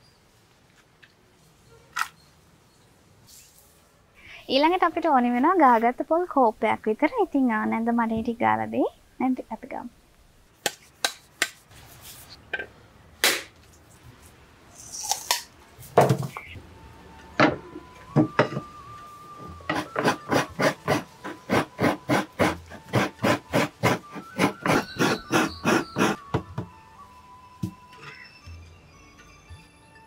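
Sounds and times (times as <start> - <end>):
coconut scraping strokes: 19.4 - 26.4.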